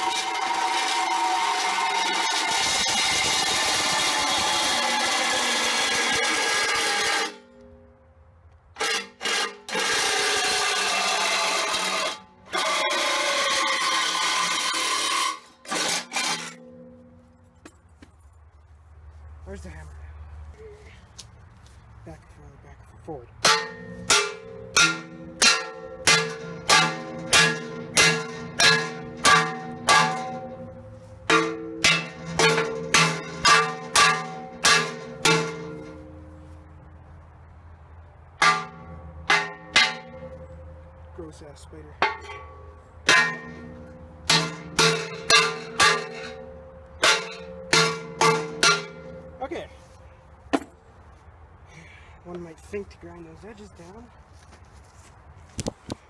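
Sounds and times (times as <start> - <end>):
reciprocating saw cutting metal: 0.0 - 7.5, 8.8 - 16.9.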